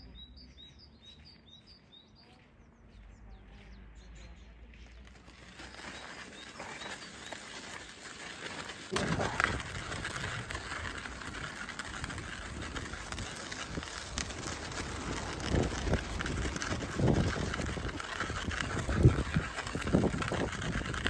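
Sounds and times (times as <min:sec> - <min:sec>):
footsteps on ice: 0:00.0 - 0:21.0
stroller wheels scraping on ice: 0:03.6 - 0:21.0.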